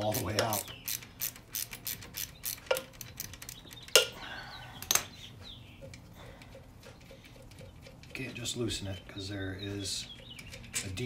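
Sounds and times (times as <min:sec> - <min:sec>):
socket ratchet clicking: 0:00.1 - 0:04.1.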